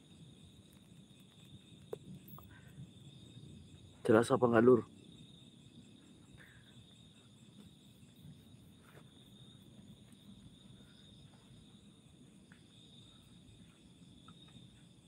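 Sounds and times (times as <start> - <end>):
faint night insects chirring: 0.0 - 15.0
faint ticks: 0.5 - 2.8, 12.5 - 14.9.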